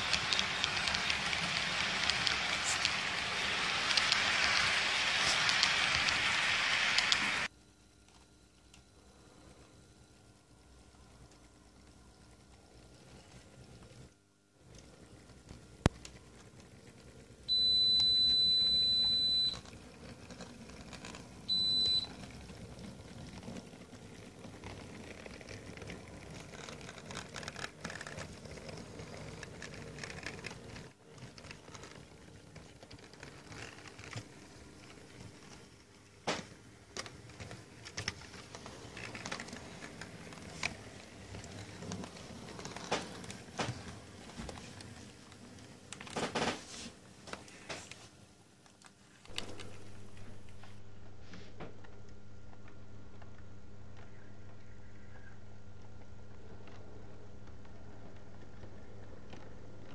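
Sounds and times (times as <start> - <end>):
model train running noise: 0.0 - 7.5, 24.2 - 30.3.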